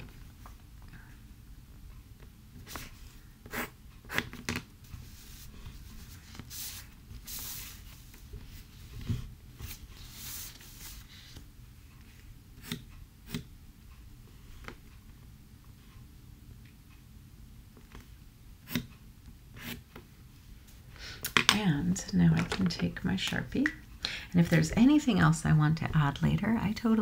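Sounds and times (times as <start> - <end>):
pencil scratching on paper: 2.6 - 4.3
paper sliding on tabletop: 4.9 - 11.4.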